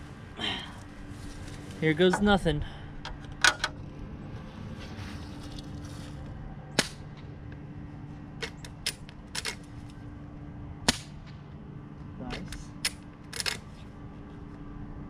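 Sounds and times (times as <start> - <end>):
airsoft rifle shot: 6.8 - 7.0, 10.9 - 11.4.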